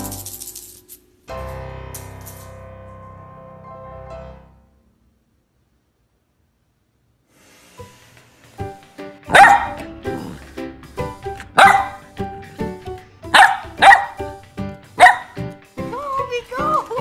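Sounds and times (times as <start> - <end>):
light background music: 0.0 - 4.8, 7.6 - 17.0
puppy barking: 9.3 - 9.9, 11.5 - 12.2, 13.3 - 14.3, 15.0 - 15.4.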